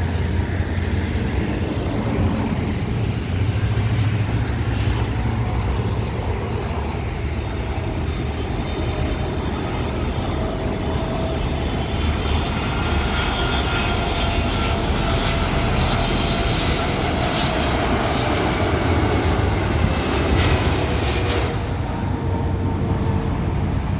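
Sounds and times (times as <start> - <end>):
jet engines whine and roar: 0.0 - 23.9.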